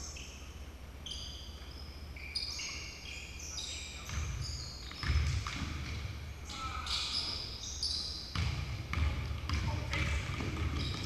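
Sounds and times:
shoes squeaking on gym floor: 0:00.0 - 0:05.8, 0:06.4 - 0:08.6, 0:10.5 - 0:11.0.

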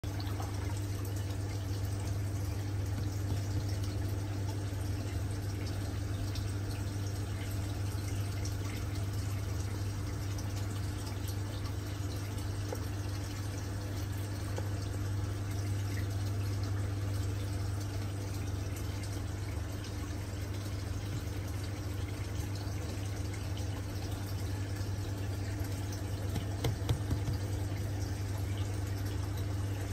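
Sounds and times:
aquarium pump humming: 0:00.0 - 0:29.9
water trickling: 0:00.0 - 0:29.9
bubbling ticks: 0:26.2 - 0:27.7.

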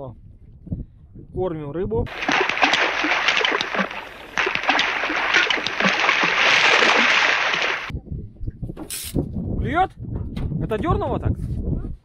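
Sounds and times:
small splashes on water: 0:02.1 - 0:07.9.

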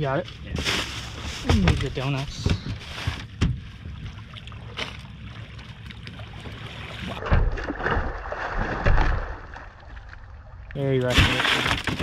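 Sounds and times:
water at boat's side: 0:00.0 - 0:12.0
wind: 0:00.0 - 0:12.0
fish splashing and thrashing: 0:02.6 - 0:12.0.

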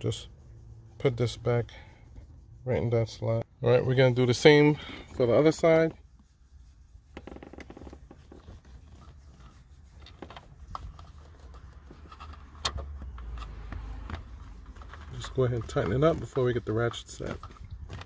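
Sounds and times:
fingers rubbing on plastic trim: 0:06.1 - 0:12.5.

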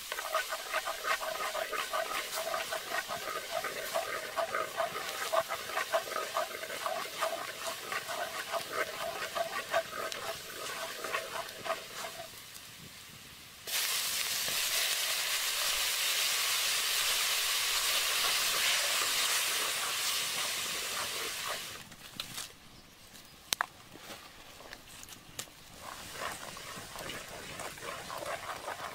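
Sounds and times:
oil sizzling in a wok: 0:00.0 - 0:12.9, 0:13.6 - 0:21.8.

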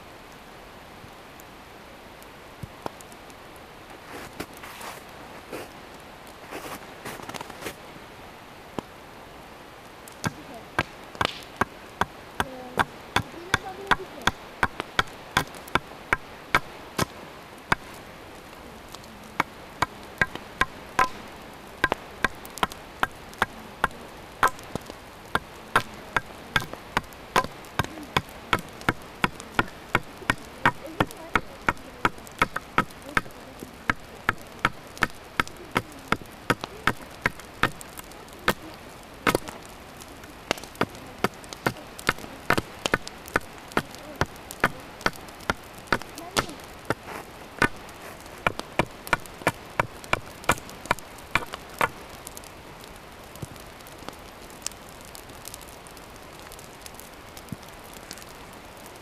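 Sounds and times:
hatchet chopping wood: 0:10.2 - 0:18.0, 0:19.4 - 0:38.6, 0:39.3 - 0:39.6, 0:40.5 - 0:52.0.

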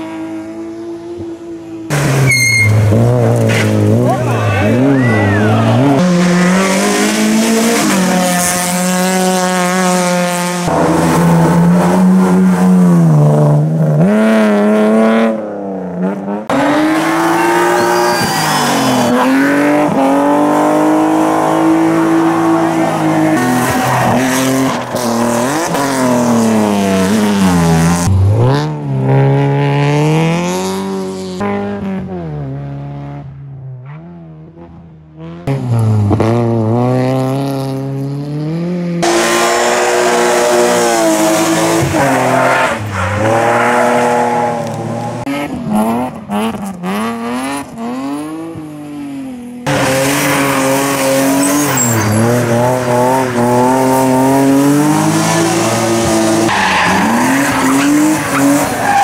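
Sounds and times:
race car engines revving: 0:00.0 - 0:59.0
tyre squeal: 0:02.2 - 0:03.7, 0:17.3 - 0:19.2, 0:50.2 - 0:53.5.

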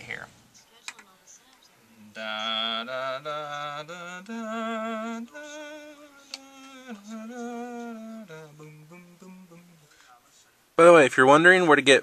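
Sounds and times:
person humming: 0:02.0 - 0:09.9.

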